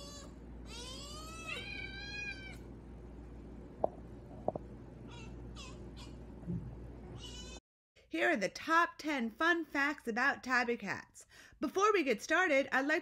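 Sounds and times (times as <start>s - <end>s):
cat meowing: 0.0s - 2.6s.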